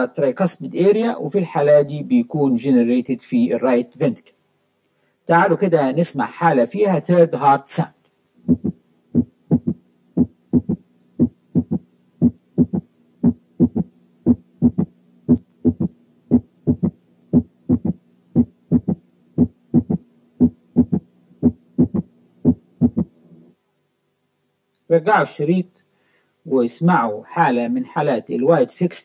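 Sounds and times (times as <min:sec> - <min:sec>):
faint steady hum: 0:00.0 - 0:29.0
heartbeat thumps: 0:08.4 - 0:23.1.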